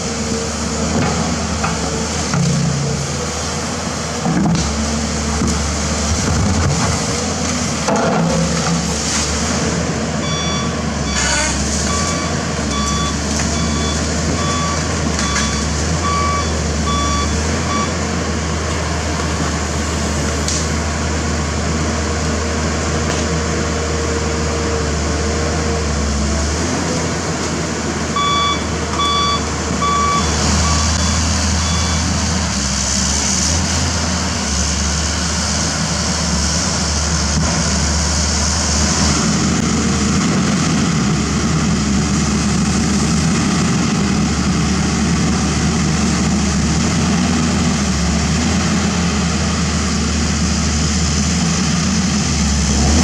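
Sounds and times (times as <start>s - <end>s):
diesel engine running under load: 0.0s - 53.0s
travel alarm beeps: 10.2s - 11.2s, 11.9s - 17.9s, 28.2s - 32.0s.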